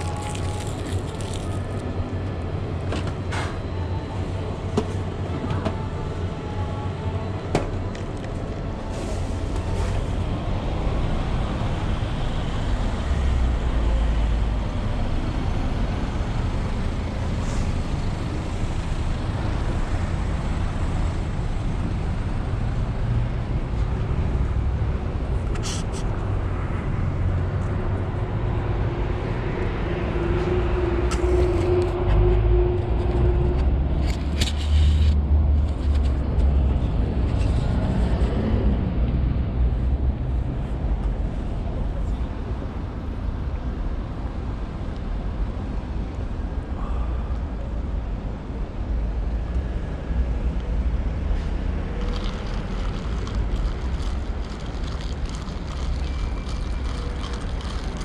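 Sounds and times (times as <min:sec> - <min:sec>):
traffic noise: 0:00.0 - 0:58.0.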